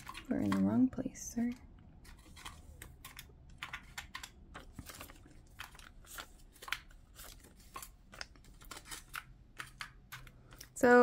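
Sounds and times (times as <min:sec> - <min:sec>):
paper bills rustling: 0:02.0 - 0:10.8.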